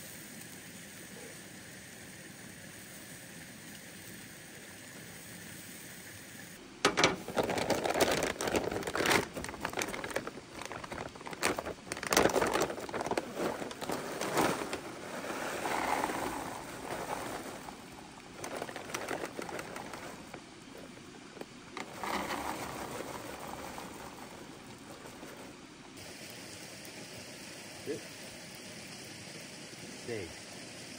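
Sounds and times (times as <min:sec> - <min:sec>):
faint steady hiss: 0:00.0 - 0:30.9
dry kibble pouring into bowl: 0:06.8 - 0:21.0, 0:21.8 - 0:25.5
plastic bag crinkling: 0:06.8 - 0:25.6.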